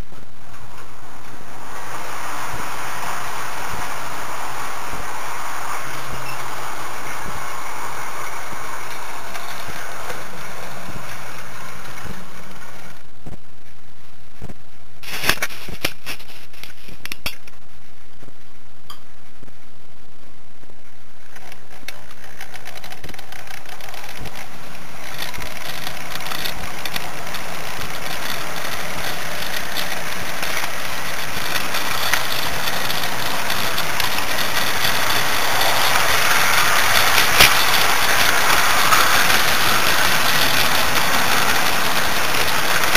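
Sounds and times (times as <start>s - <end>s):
electric motor hum: 0.0s - 13.1s, 23.8s - 42.9s
model train wheels rattling on track: 0.0s - 13.1s, 21.3s - 42.9s.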